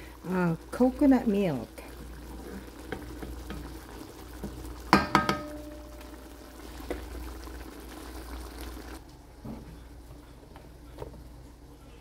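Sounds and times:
sauce bubbling in a wok: 0.0 - 9.0
wooden spatula stirring: 2.0 - 5.1.

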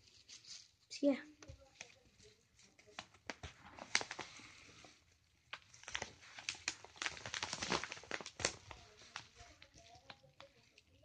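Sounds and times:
paper mailer crinkling: 2.2 - 4.8, 5.5 - 10.8.

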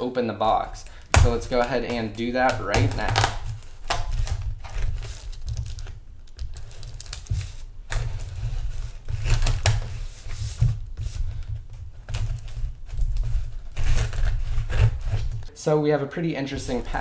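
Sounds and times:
plastic crinkling: 0.4 - 15.5, 16.5 - 17.0
knife cutting packing tape: 0.8 - 10.4.

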